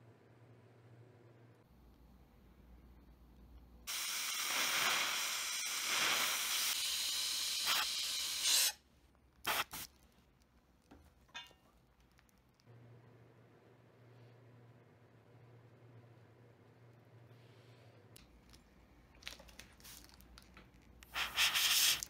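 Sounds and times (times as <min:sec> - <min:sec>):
air-water syringe hissing: 0:03.9 - 0:08.8, 0:09.4 - 0:09.9, 0:21.0 - 0:22.0.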